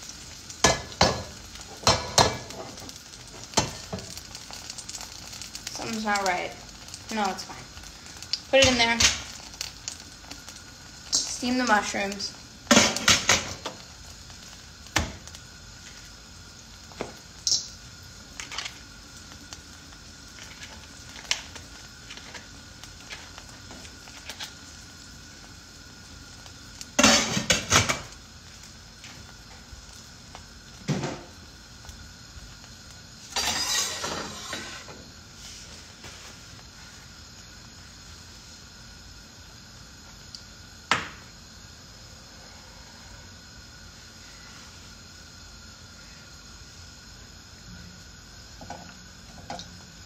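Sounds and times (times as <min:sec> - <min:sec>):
pots and pans clattering: 0:33.3 - 0:34.9.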